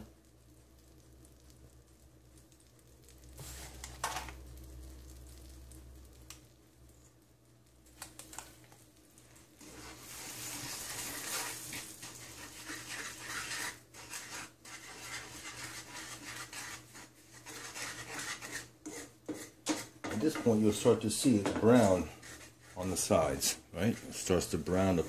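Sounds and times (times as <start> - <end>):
wooden spatula scraping skillet: 3.4 - 4.3, 9.5 - 25.0.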